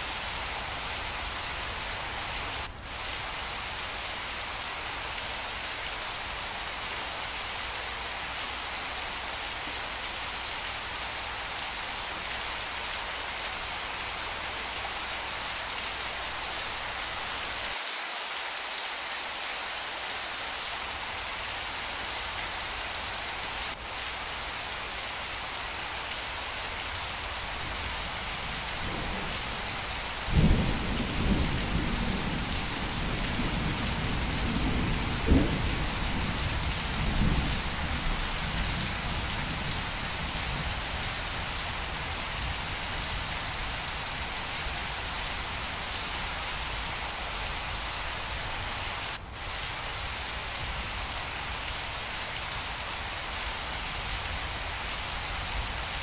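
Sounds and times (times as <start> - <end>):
steady rain falling: 0.0 - 56.0
thunder rumbling: 28.4 - 40.8.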